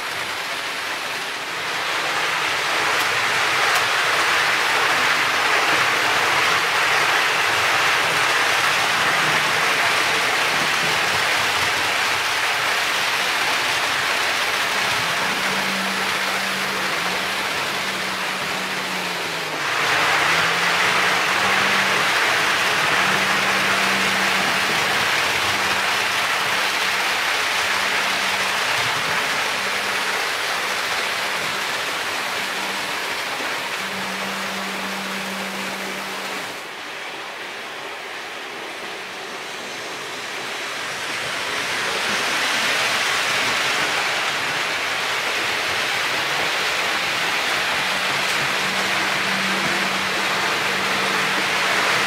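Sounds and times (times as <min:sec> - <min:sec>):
low motor hum: 0:00.0 - 0:52.0
model train wheels rumbling on rails: 0:00.0 - 0:52.0.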